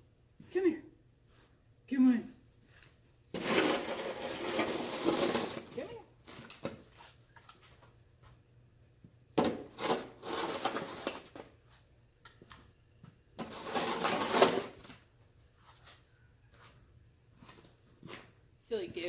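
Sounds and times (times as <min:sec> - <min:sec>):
snow shovel scraping snow: 0:03.4 - 0:05.9, 0:09.8 - 0:11.2, 0:13.4 - 0:14.8.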